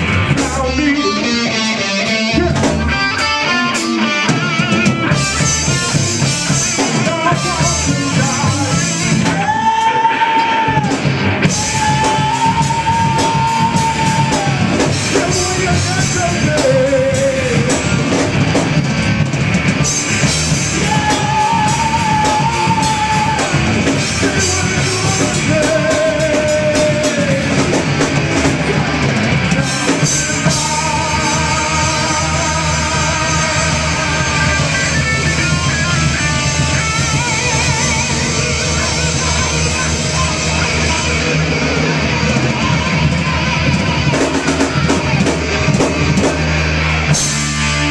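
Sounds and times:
drum kit: 0:00.0 - 0:47.9
electric guitars: 0:00.0 - 0:47.9
singer holding long notes: 0:00.1 - 0:18.2, 0:19.9 - 0:47.9.

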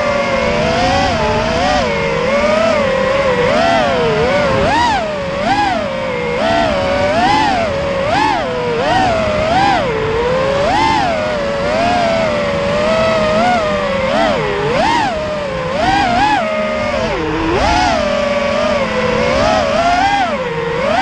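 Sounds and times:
quadcopter motors whining: 0:00.0 - 0:21.0.

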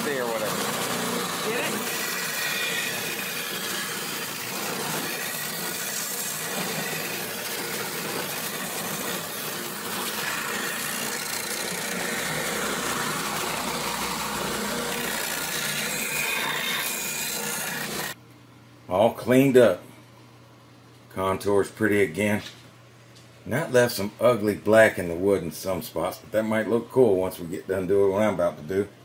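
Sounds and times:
belt sander sanding wood: 0:00.0 - 0:18.2.

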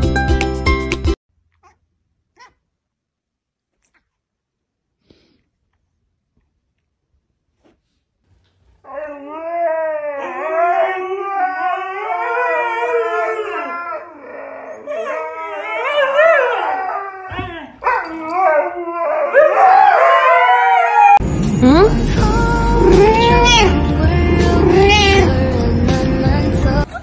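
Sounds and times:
huskies howling: 0:08.9 - 0:21.2, 0:22.4 - 0:26.8.

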